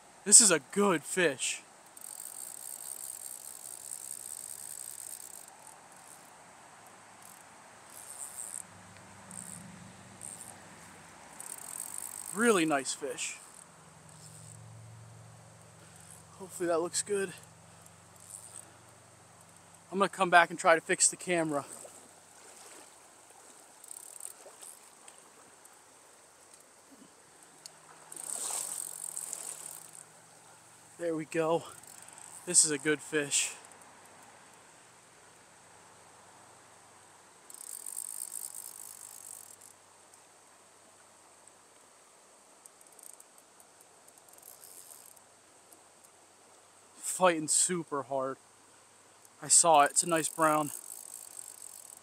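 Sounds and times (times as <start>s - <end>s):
crickets trilling: 0.0s - 52.0s
stream water rushing: 19.9s - 26.3s, 27.2s - 33.5s.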